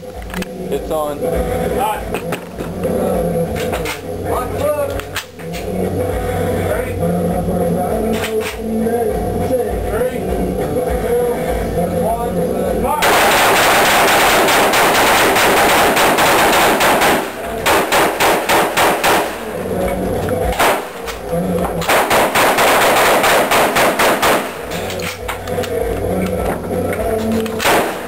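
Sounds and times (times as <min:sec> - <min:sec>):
rapid gunfire: 0:13.0 - 0:19.5, 0:20.5 - 0:21.1, 0:21.8 - 0:24.8, 0:27.6 - 0:28.0.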